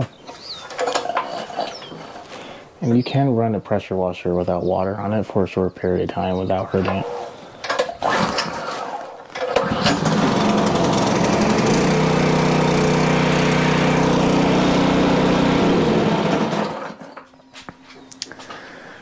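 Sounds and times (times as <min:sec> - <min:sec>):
recoil starter pull: 0:06.9 - 0:17.3
small gas engine running: 0:08.0 - 0:17.2.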